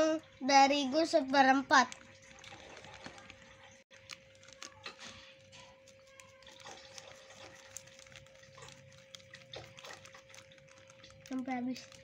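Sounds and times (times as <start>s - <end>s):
plastic bag rustling: 1.8s - 12.0s.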